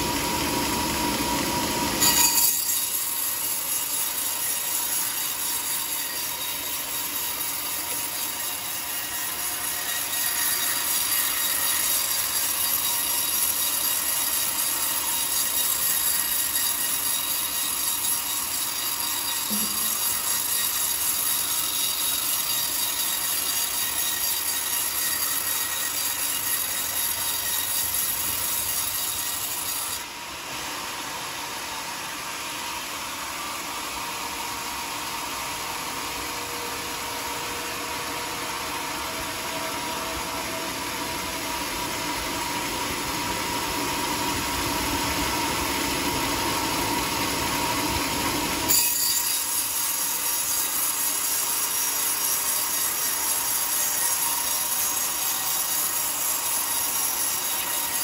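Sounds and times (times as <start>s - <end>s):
band saw cutting log: 0.0s - 30.8s.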